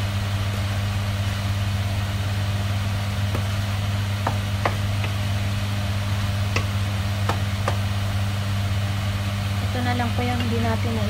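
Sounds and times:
spatula knocking on pan: 4.2 - 5.3, 6.5 - 7.9.

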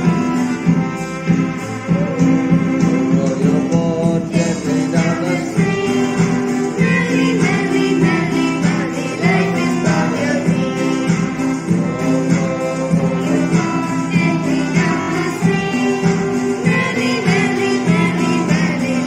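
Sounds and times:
person singing: 1.7 - 19.0.

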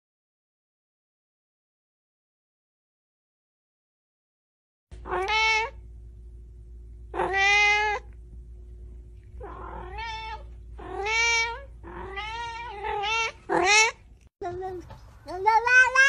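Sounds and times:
faint steady hum: 4.9 - 16.0
cat meowing: 5.0 - 5.8, 7.1 - 8.1, 9.4 - 14.1, 15.5 - 16.0.

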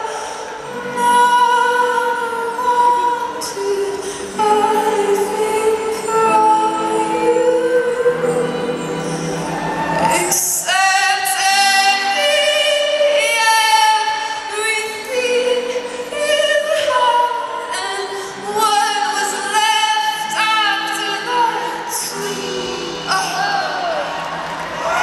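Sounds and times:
woman singing into a microphone: 0.0 - 24.2.

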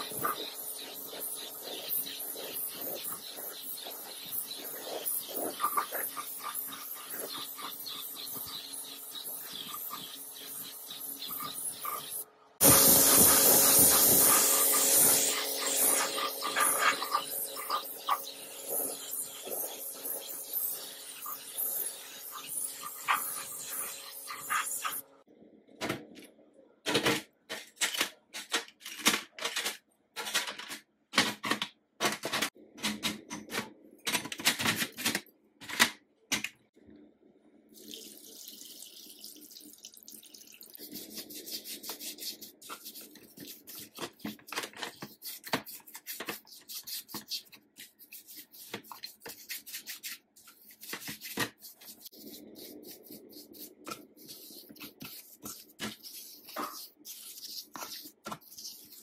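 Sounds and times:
brush scrubbing: 0.0 - 25.0, 40.8 - 59.0
liquid pouring and splashing: 37.7 - 40.8.

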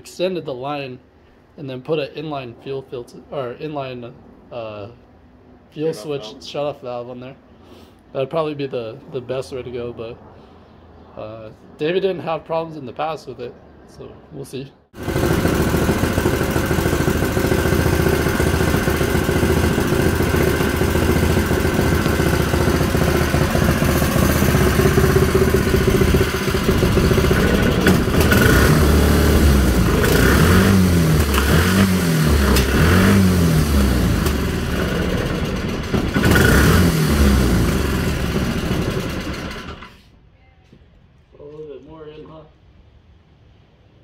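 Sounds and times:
single-cylinder engine running: 15.0 - 39.9
engine revving in short blips: 15.2 - 39.9.

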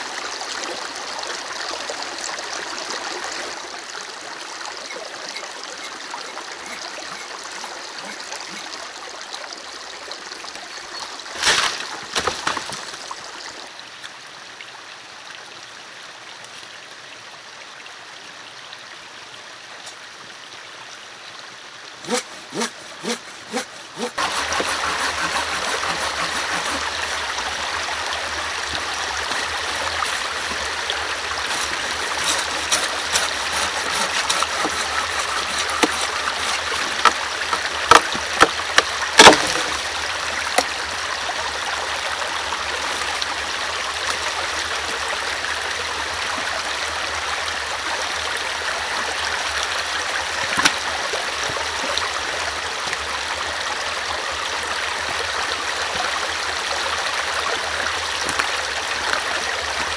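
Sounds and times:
shallow stream running: 0.0 - 59.9
machete cutting wood: 4.9 - 7.4, 8.0 - 8.6, 11.4 - 12.9, 22.0 - 27.2, 29.2 - 30.8, 31.4 - 39.8, 50.5 - 50.8.

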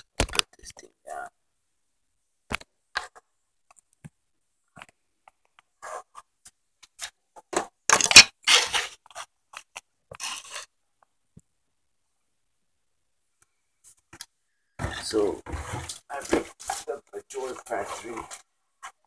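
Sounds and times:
objects scraping and clicking: 4.8 - 10.7.

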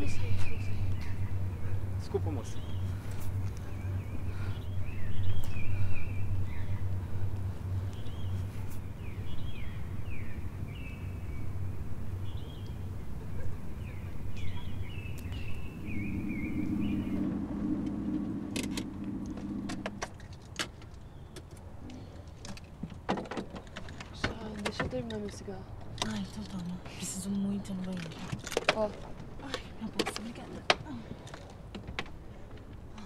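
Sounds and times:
car engine hum: 0.0 - 21.8
birds chirping: 0.0 - 22.5.

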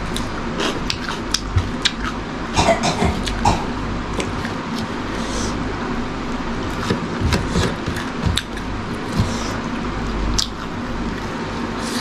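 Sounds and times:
close chewing: 0.0 - 2.2
steady background hum: 0.0 - 12.0.

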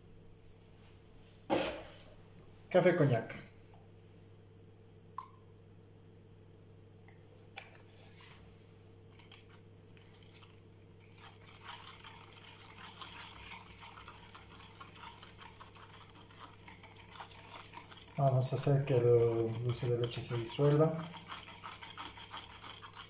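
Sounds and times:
steady low hum: 0.0 - 23.0
metal spoon stirring in jug: 9.2 - 23.0.

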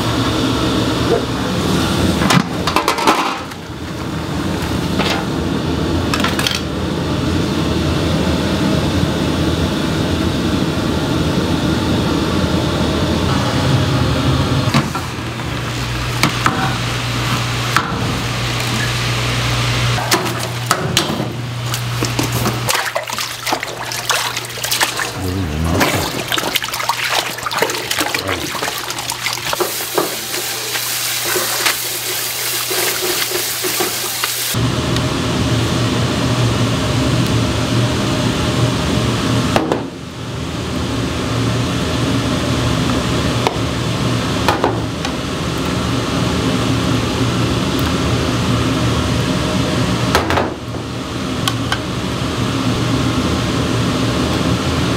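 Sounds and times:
gas burner and exhaust hum: 0.0 - 54.9
water splashing and sloshing: 20.0 - 34.4.

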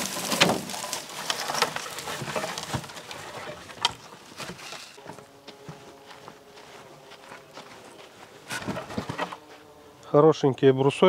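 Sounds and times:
wood knocking and creaking: 0.0 - 5.8, 8.4 - 9.5
dry stems cracking and rustling: 0.0 - 9.6.

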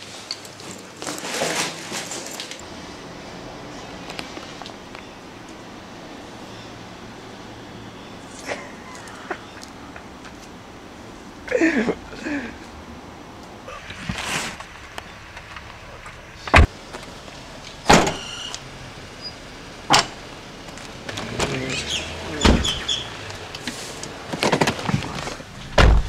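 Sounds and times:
doors banging shut: 17.9 - 18.5, 19.9 - 20.2, 21.1 - 23.1, 24.4 - 26.0.

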